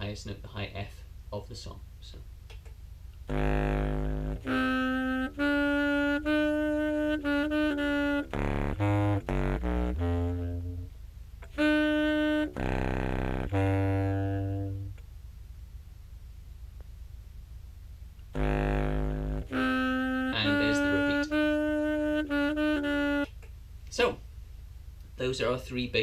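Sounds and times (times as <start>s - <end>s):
contrabass clarinet melody: 3.3s - 15.0s, 18.3s - 23.3s.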